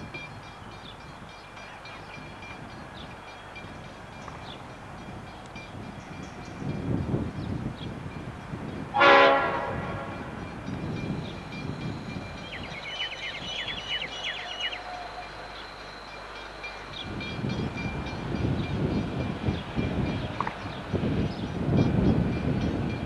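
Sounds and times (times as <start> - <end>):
train rumbling: 0.0 - 23.0
train horn blast: 8.9 - 10.4.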